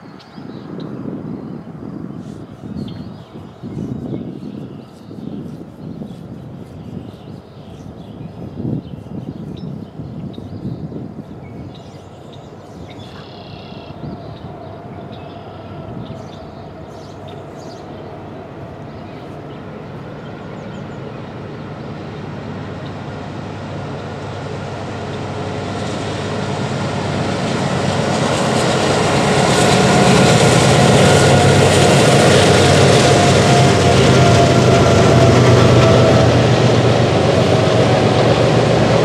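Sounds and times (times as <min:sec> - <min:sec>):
diesel locomotive engines: 0:00.0 - 0:39.0
freight cars rolling on rails: 0:22.4 - 0:39.0.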